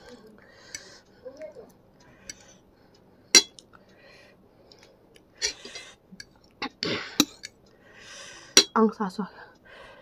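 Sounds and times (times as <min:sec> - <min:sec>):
metal fork clinking on plate: 0:03.4 - 0:03.6.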